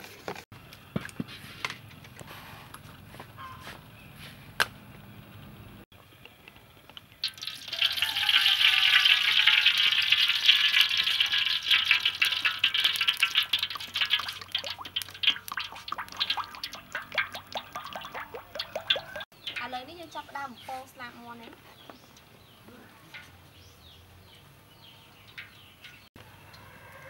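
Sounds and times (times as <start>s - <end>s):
oil pouring into metal wok: 7.2s - 19.2s
glugs and splashes: 7.2s - 19.4s.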